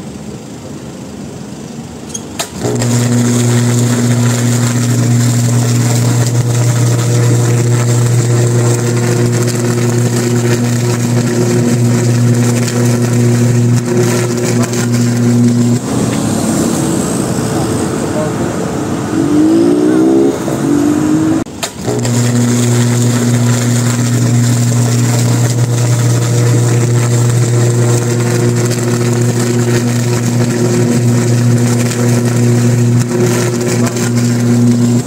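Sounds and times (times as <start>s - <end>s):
loud electrical buzz: 2.1s - 35.0s
electric arc cracks: 2.3s - 16.2s, 21.5s - 35.0s.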